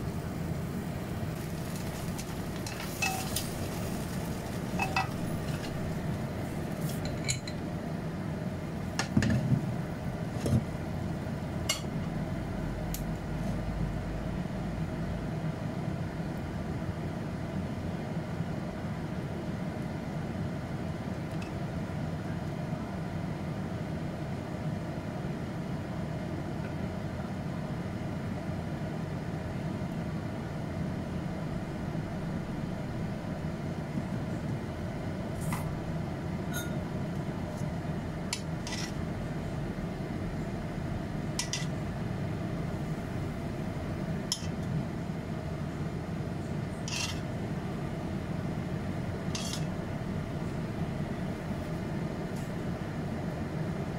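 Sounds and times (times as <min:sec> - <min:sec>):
low kitchen hum: 0:00.0 - 0:53.9
utensils clinking on plate: 0:02.6 - 0:03.5, 0:04.8 - 0:05.7, 0:36.5 - 0:36.8.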